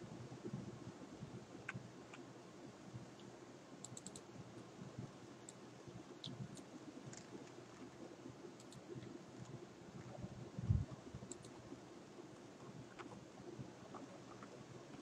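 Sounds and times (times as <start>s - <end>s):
low background noise: 0.0s - 15.0s
keyboard typing clicks: 3.8s - 4.3s, 8.6s - 9.1s, 11.3s - 11.6s.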